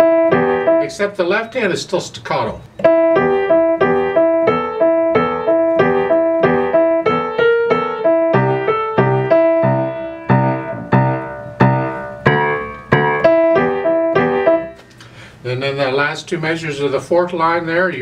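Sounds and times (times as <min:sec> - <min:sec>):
deep piano bass notes: 0:00.0 - 0:01.5, 0:02.8 - 0:14.8
grand piano playing: 0:00.0 - 0:01.5, 0:02.8 - 0:14.8.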